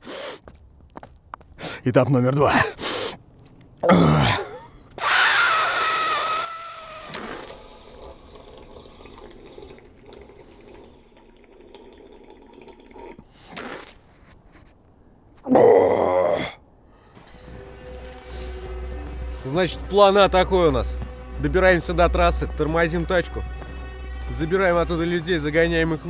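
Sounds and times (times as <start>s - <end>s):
water trickling from mouth: 6.5s - 13.8s
man spluttering water: 6.5s - 14.0s.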